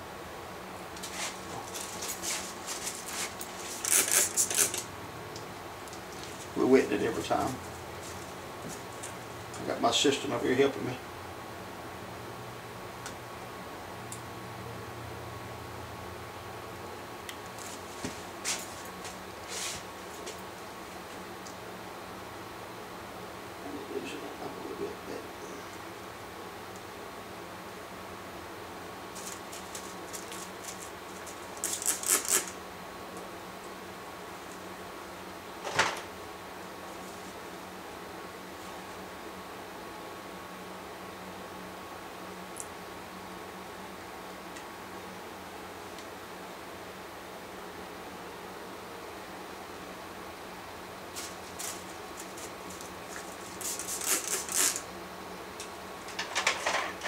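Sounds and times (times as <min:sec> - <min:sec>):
faint steady hum: 0:00.0 - 0:57.0
plastic rods clicking and hair rustling: 0:01.7 - 0:04.9.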